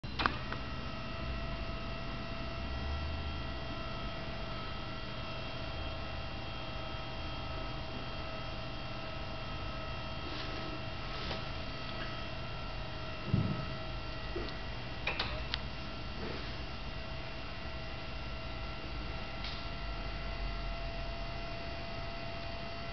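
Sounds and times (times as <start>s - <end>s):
electrical hum: 0.0s - 22.9s.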